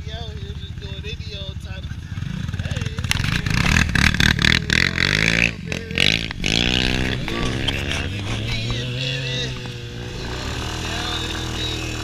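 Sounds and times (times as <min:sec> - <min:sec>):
quad engine revving: 0:00.0 - 0:12.0.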